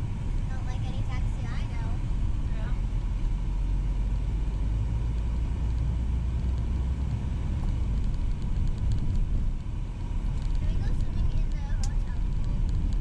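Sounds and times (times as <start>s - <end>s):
van engine and road rumble: 0.0s - 13.0s.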